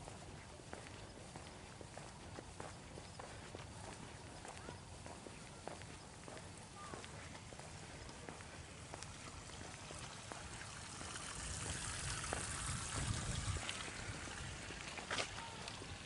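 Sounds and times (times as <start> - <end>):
light footsteps: 0.0 - 16.0.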